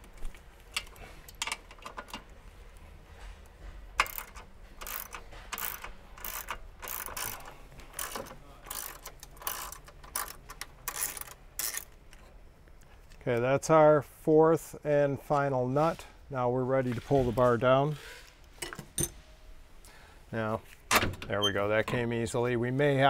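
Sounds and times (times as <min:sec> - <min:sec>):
hand ratchet clicking: 0:04.0 - 0:12.0.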